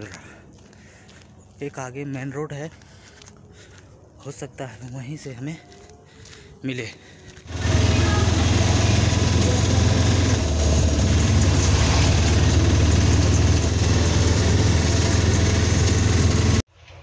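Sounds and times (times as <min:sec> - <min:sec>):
auto-rickshaw engine throbbing: 0:07.5 - 0:16.7.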